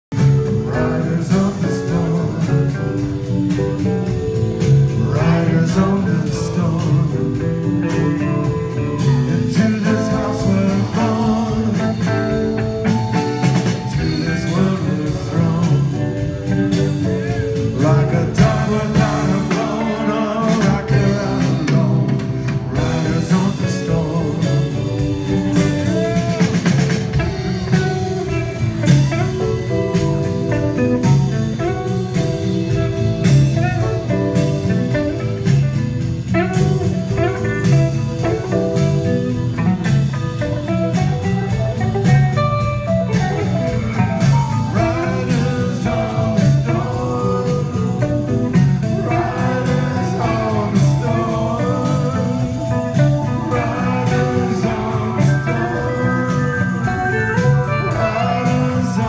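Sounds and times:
drums: 0.0s - 59.0s
electric guitar: 0.0s - 59.0s
keyboards: 0.0s - 59.0s
live rock band playing: 0.0s - 59.0s
man singing: 0.1s - 41.6s, 43.0s - 59.0s.

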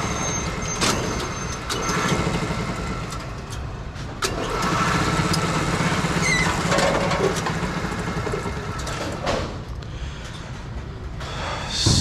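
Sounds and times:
machinery hum: 7.5s - 12.0s.

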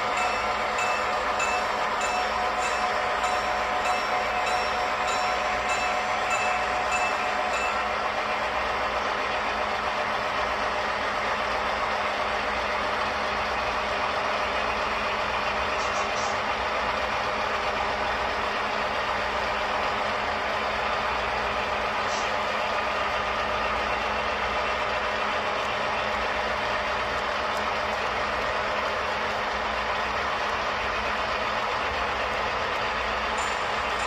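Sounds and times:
model train rumbling: 0.0s - 34.0s
bell ringing: 0.1s - 8.0s.

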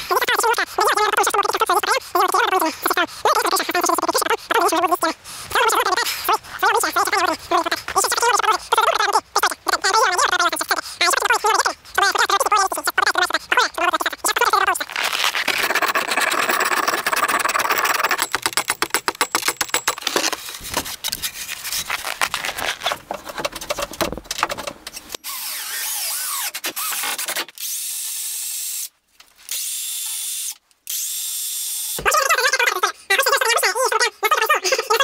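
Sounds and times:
rapid clicking rattle: 15.5s - 20.0s.

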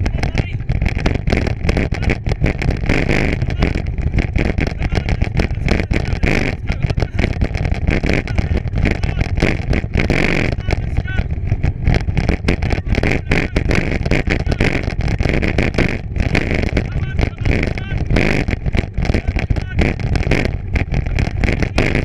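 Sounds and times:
bicycle rolling over bumpy trail: 0.0s - 22.0s
wind buffeting microphone: 0.0s - 22.0s.

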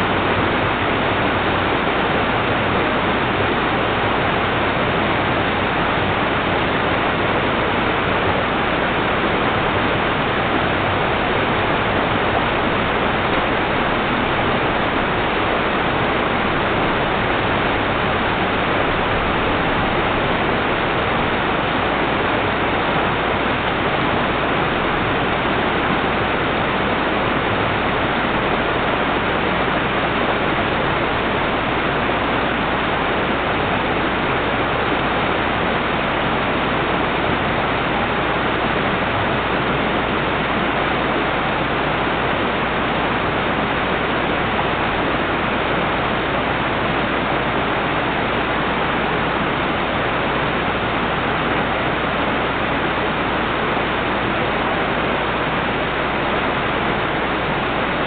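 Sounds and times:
water rushing: 10.4s - 33.6s.

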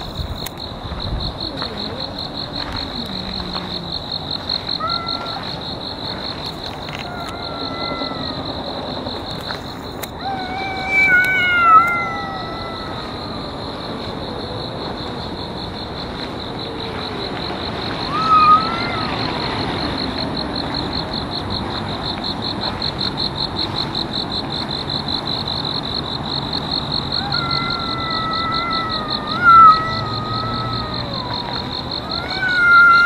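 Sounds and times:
insect chorus: 0.0s - 33.0s
cats growling: 1.4s - 9.5s, 27.2s - 33.0s
cat yowling: 4.7s - 5.6s, 6.9s - 8.5s, 10.2s - 13.4s, 18.1s - 19.3s, 27.2s - 33.0s.

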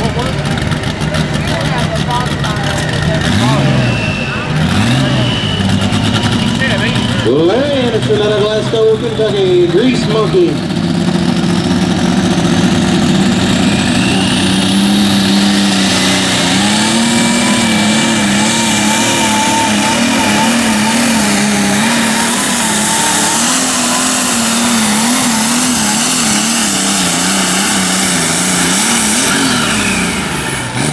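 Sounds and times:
diesel engine under load: 0.0s - 30.9s
high whine: 11.2s - 30.8s.

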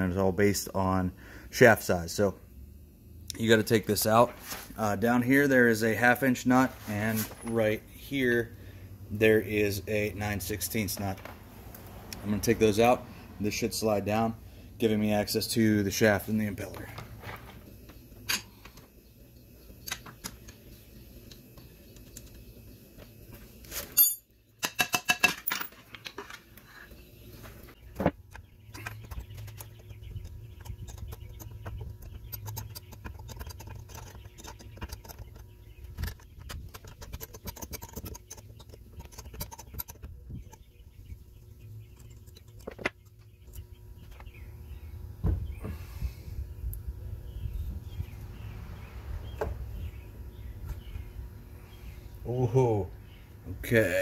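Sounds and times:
metal parts clicking and clattering: 23.8s - 26.4s, 36.0s - 40.6s.

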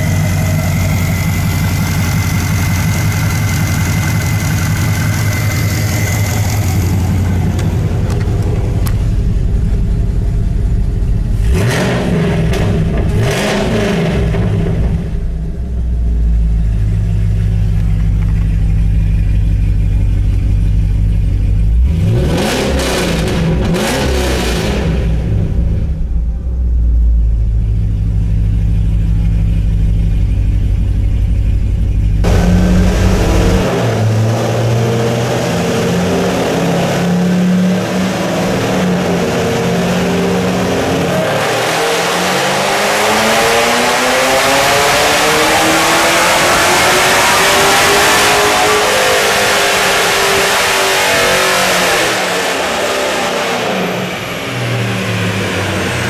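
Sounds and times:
car engine revving on dyno: 0.0s - 15.5s, 21.7s - 26.0s, 32.2s - 56.0s.

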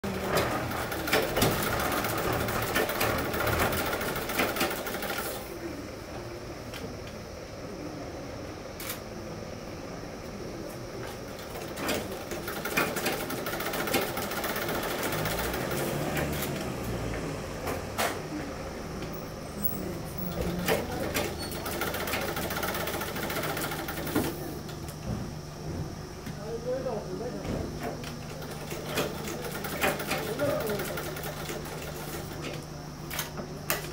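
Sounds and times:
sewing machine stitching: 0.0s - 5.4s, 11.5s - 16.9s, 20.3s - 24.4s, 28.4s - 32.5s.

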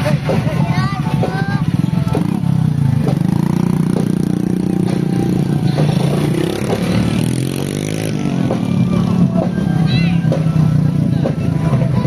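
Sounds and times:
motorcycle engine revving: 1.2s - 12.0s.

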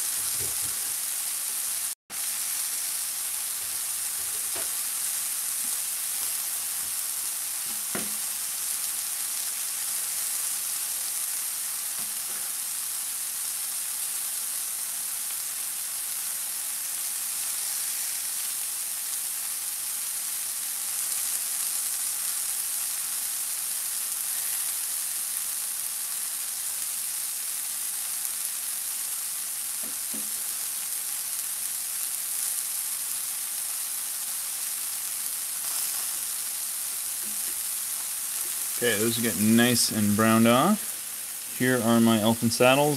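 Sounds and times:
mushrooms sizzling in oil: 0.0s - 42.9s.

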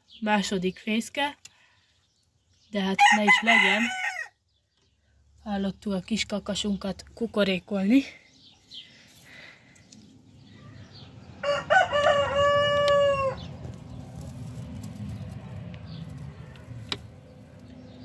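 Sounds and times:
rooster crowing: 3.0s - 4.4s, 11.3s - 13.5s.

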